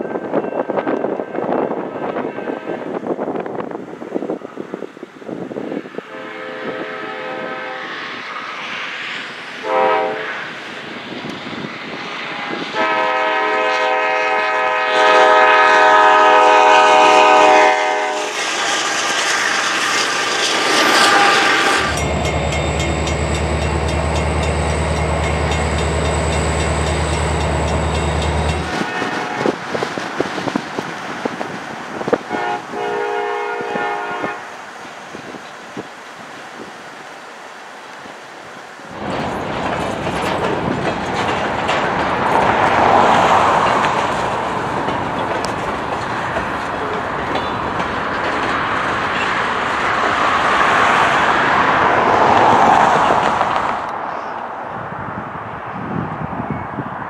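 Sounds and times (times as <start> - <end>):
locomotive horn blasts: 6.1 - 8.0, 9.6 - 10.4, 12.4 - 18.4, 21.0 - 29.6, 32.3 - 34.6
diesel locomotive rumble: 12.3 - 34.8, 38.9 - 50.2.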